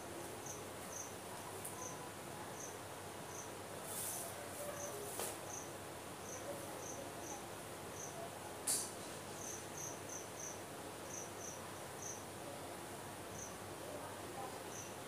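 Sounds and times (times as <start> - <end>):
faint steady hiss: 0.0 - 15.0
cricket chirping: 0.4 - 1.1, 3.3 - 3.5, 5.5 - 7.4, 9.4 - 12.2, 13.4 - 13.6.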